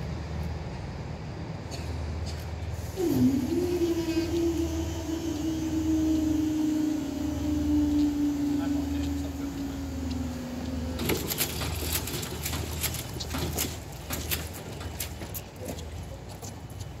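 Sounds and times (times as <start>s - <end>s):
low steady rumble: 0.0s - 17.0s
barrier mechanism humming: 2.8s - 15.6s.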